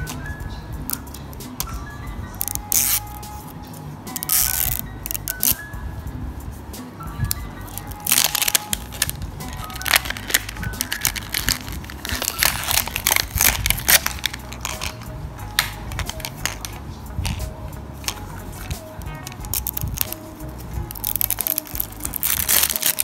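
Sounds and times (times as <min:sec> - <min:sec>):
background music: 0:00.0 - 0:23.0
plastic wrap crinkling: 0:02.4 - 0:03.3, 0:04.1 - 0:05.6, 0:07.7 - 0:23.0.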